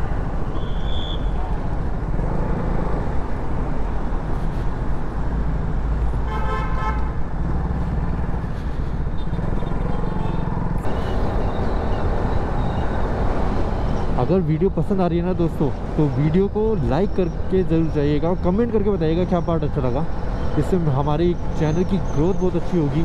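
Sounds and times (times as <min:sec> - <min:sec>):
road and wind noise: 0:00.0 - 0:23.0
vehicle horn beep: 0:06.3 - 0:07.1.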